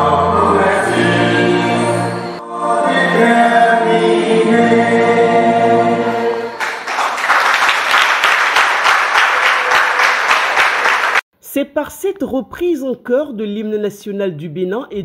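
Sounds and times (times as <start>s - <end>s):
crowd singing an anthem: 0.0s - 6.6s
loud applause: 6.4s - 11.2s.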